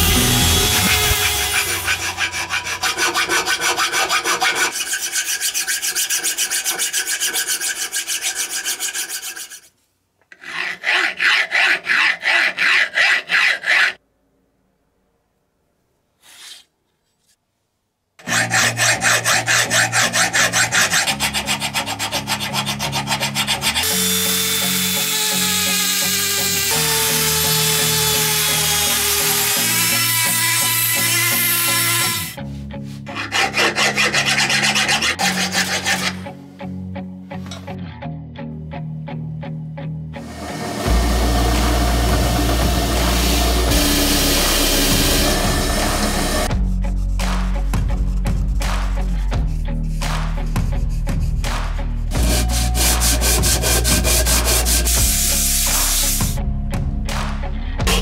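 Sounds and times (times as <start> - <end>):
background music: 0.0 - 4.7, 18.2 - 58.0
sanding drum rasping on metal: 0.0 - 9.7, 10.4 - 14.0, 18.2 - 23.9, 33.1 - 36.3, 40.3 - 47.2, 52.1 - 56.4.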